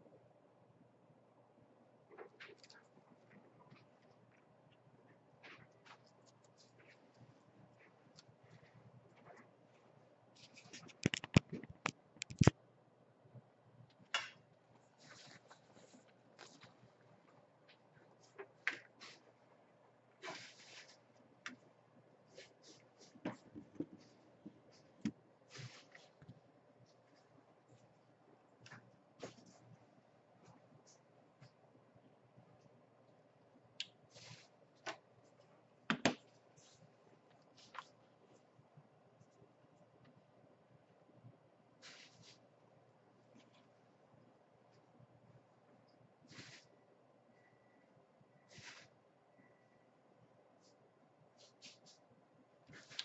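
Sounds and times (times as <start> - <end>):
objects clicking on a desk: 10.6 - 12.6.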